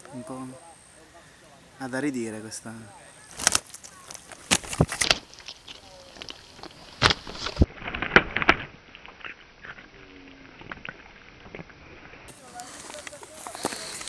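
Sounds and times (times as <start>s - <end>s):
fish slapping against palms: 3.3s - 8.7s.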